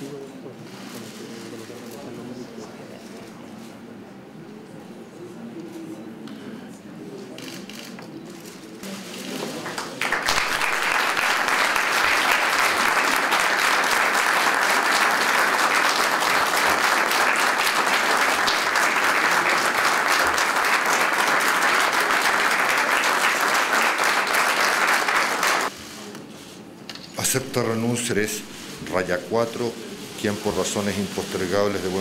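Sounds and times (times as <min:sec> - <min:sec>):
crowd applauding: 0:09.6 - 0:25.7.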